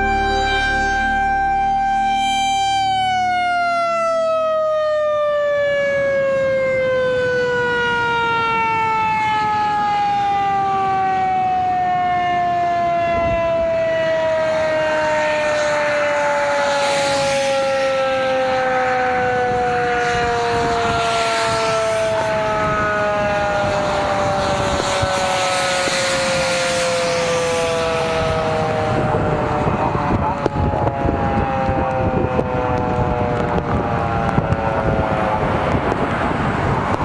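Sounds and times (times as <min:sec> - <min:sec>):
rushing noise: 0:00.0 - 0:03.5
two-tone siren winding down: 0:00.0 - 0:37.0.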